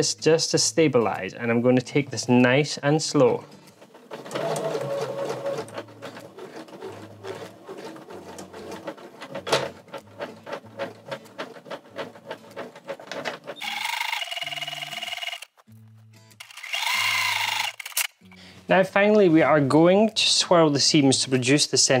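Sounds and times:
music: 0.0 - 13.6, 14.4 - 22.0
sewing machine stitching: 3.4 - 15.5
needle clicking: 3.5 - 15.6.

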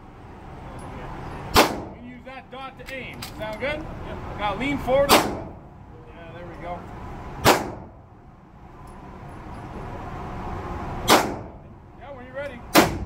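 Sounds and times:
rifle shots with echo: 1.5 - 2.0, 7.4 - 7.9, 11.1 - 11.6.

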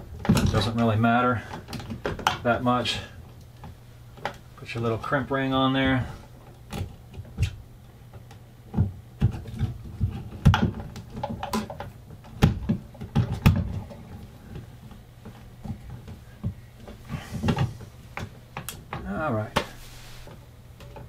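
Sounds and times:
low steady hum: 0.0 - 21.0
wires worked in plastic box: 0.0 - 21.0.

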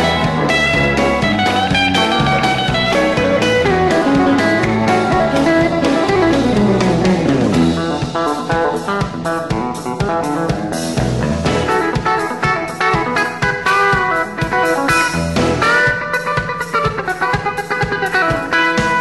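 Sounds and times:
guitar line falling in pitch: 0.0 - 9.4
country band with electric guitars: 0.0 - 19.0.

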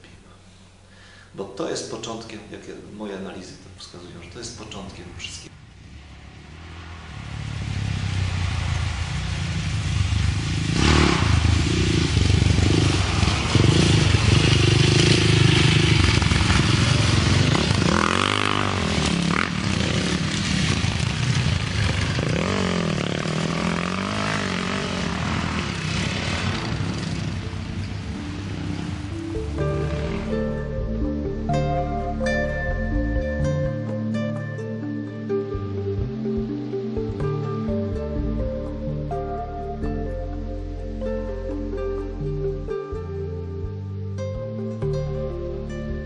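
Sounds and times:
dirt bike engines revving: 5.5 - 31.2.

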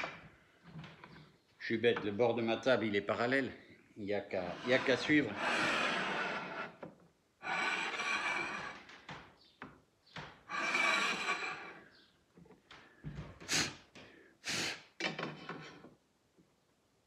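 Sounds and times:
scraping slides on workbench: 4.3 - 6.8, 7.4 - 8.8, 10.5 - 11.8
knocks and clatters: 8.5 - 11.4.

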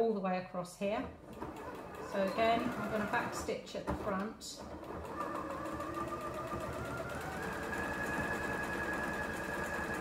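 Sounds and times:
electric sewing machine stitching: 1.2 - 10.0.

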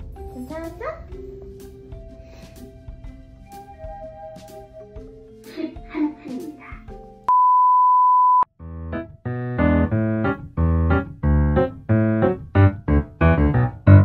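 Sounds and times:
loud steady beep: 7.3 - 8.5.

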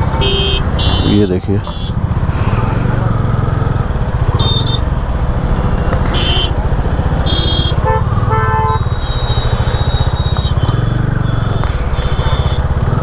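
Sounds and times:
motorcycle engine rumbling: 0.0 - 13.0
vehicle horn: 0.1 - 2.0, 4.4 - 4.9, 6.1 - 6.6, 7.2 - 12.7
short high-pitched vehicle beeps: 8.7 - 12.7.

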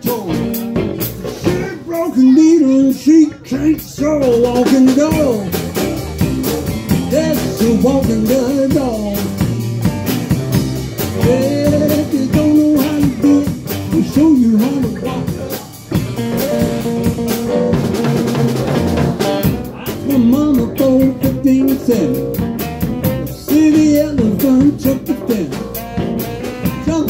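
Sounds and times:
bass guitar: 0.0 - 27.0
drum kit beat: 0.0 - 27.0
electric guitar: 0.0 - 27.0
saxophone lead line: 5.0 - 27.0.

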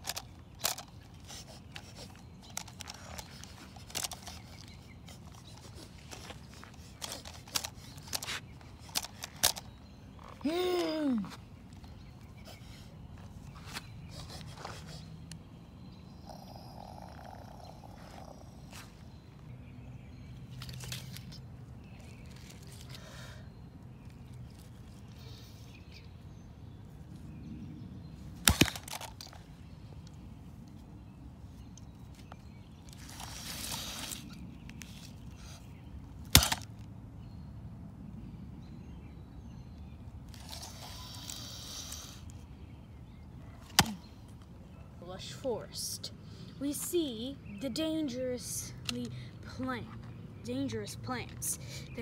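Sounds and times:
voice growling like a dinosaur: 16.2 - 18.7.

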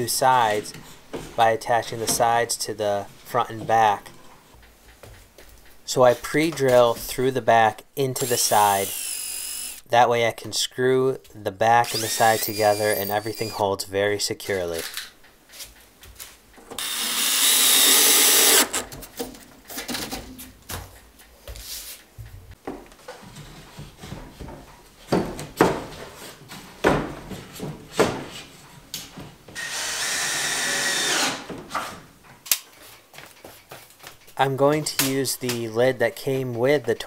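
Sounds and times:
cordless drill drilling wood: 8.2 - 9.8, 11.8 - 13.6, 16.8 - 18.8, 29.6 - 31.5.

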